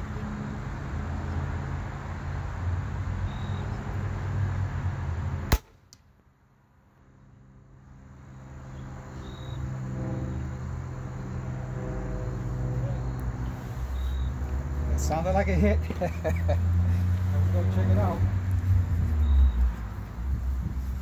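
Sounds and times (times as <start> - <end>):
arrow striking target: 5.5 - 6.1.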